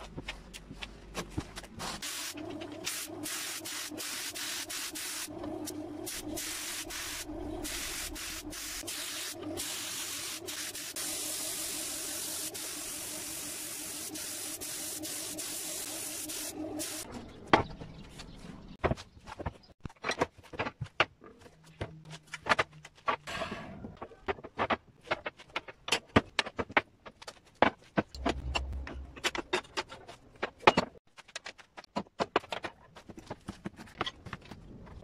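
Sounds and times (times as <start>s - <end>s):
paint spray gun hissing: 2.0s - 17.0s.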